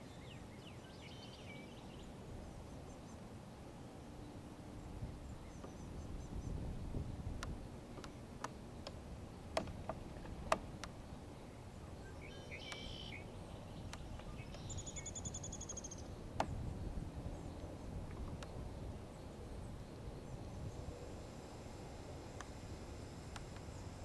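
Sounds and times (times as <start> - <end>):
low steady rumble: 1.8 - 24.0
small birds calling: 5.2 - 18.9
sharp clicks: 7.4 - 11.0, 13.8 - 16.6
bird trill: 12.0 - 16.1.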